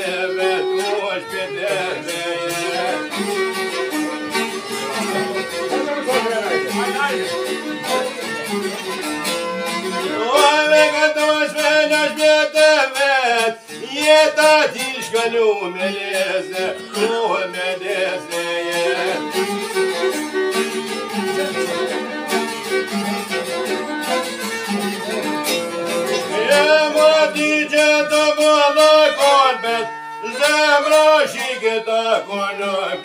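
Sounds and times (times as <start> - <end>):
man singing: 0.0 - 3.6, 10.0 - 19.5, 26.1 - 33.0
plucked long-necked lute: 0.0 - 33.0
violin: 0.0 - 33.0.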